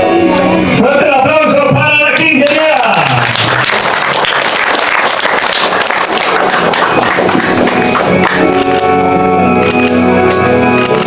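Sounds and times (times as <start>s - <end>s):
noisy crowd: 0.0s - 11.0s
party music: 0.0s - 11.0s
people clapping: 2.1s - 11.0s
held chords: 5.6s - 11.0s.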